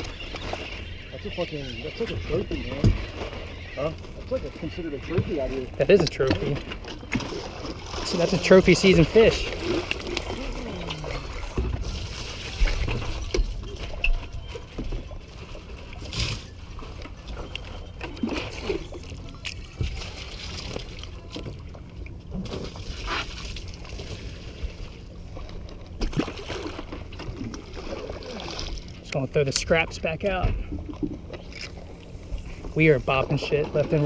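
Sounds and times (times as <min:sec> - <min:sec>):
water lapping against boat hull: 0:00.0 - 0:34.0
short splashes: 0:06.3 - 0:21.5, 0:26.0 - 0:29.1.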